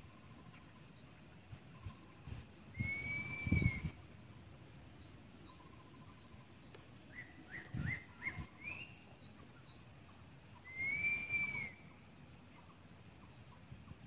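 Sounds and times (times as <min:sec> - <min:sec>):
birds chirping: 0:00.0 - 0:14.0
faint outdoor background noise: 0:00.0 - 0:14.0
bird whistled note: 0:02.7 - 0:04.0, 0:10.6 - 0:11.8.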